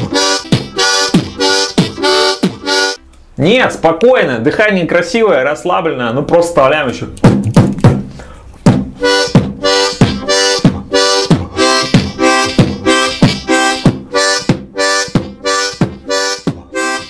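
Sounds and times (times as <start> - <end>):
beatboxed kick drum: 0.0 - 3.0, 7.2 - 17.0
harmonica chords: 0.0 - 3.2, 8.2 - 17.0.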